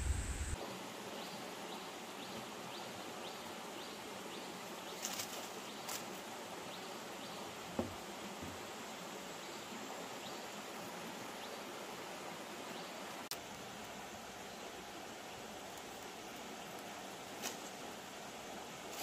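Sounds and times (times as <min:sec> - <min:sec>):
low rumble: 0:00.0 - 0:00.6
stream hiss: 0:00.0 - 0:19.0
dry crackles of plant strips: 0:15.7 - 0:17.8.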